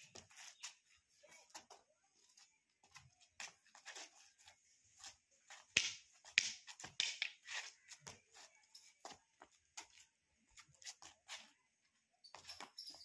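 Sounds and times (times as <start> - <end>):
feet scuffing on concrete: 0.0 - 11.7.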